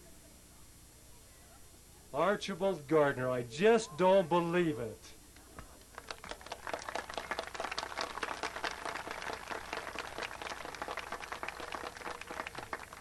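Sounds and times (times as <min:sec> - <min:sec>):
crowd applauding: 0:06.0 - 0:13.0.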